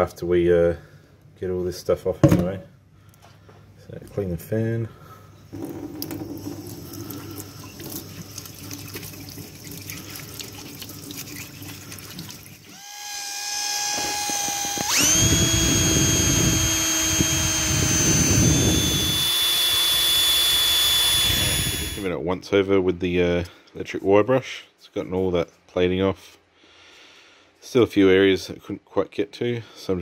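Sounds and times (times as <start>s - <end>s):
tap water running into sink: 5.6s - 12.7s
drill with wire wheel whining: 12.7s - 22.1s.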